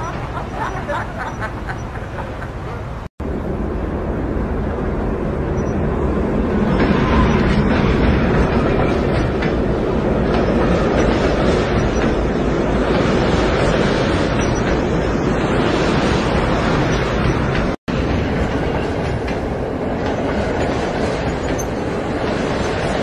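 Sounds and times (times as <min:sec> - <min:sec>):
train rumbling past: 0:00.0 - 0:23.0.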